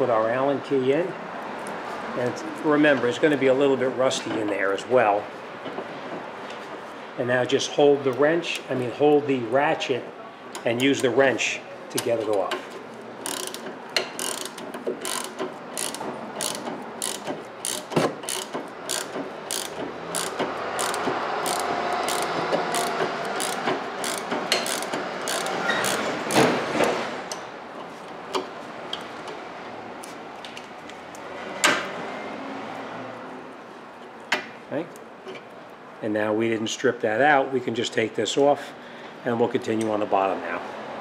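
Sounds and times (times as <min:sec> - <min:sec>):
hand ratchet clicking: 0:13.2 - 0:26.5.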